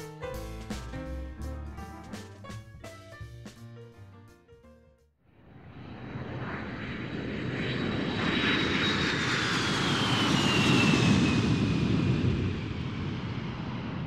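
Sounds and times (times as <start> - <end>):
jet airplane passing overhead: 5.3 - 14.0.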